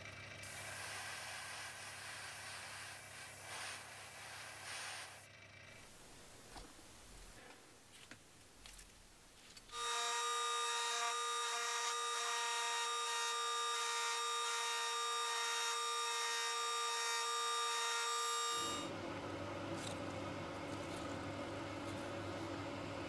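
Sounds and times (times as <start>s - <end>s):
rotary tool high-pitched whine: 0.0s - 7.4s, 9.5s - 18.9s.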